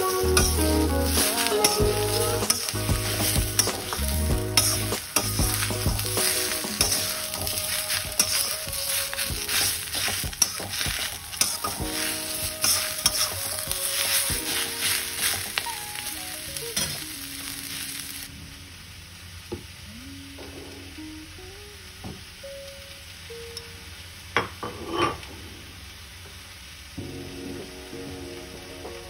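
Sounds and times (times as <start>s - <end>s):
background music: 0.0s - 18.3s, 27.0s - 29.0s
vegetables sizzling in a wok: 0.0s - 29.0s
metal spatula scraping a pan: 0.1s - 15.6s, 24.6s - 25.2s.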